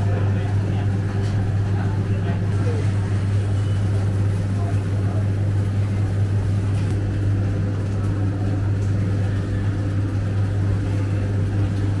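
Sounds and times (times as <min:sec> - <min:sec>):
kitchen machinery humming: 0:00.0 - 0:12.0.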